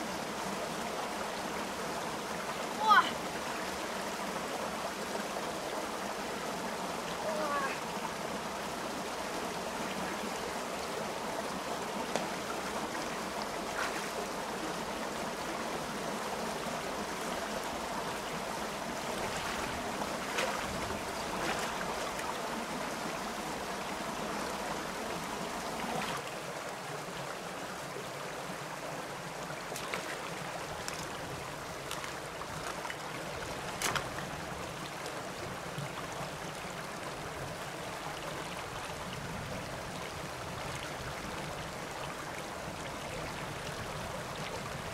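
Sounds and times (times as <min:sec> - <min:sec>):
stream rushing over rocks: 0:00.0 - 0:44.9
short knocks and splashes: 0:19.2 - 0:21.8, 0:33.7 - 0:34.2.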